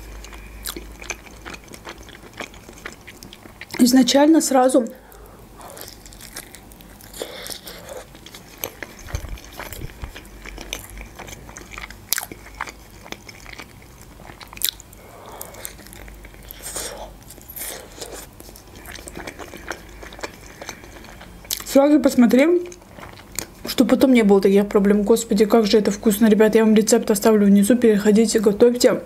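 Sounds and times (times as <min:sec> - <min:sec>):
chewing dumpling: 0:00.0 - 0:04.0, 0:05.0 - 0:24.1.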